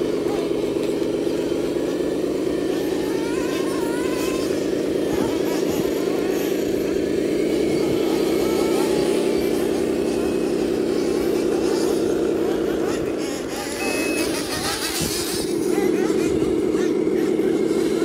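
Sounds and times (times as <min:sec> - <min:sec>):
faint voices: 0:00.0 - 0:18.0
toy truck motor running: 0:00.0 - 0:18.0.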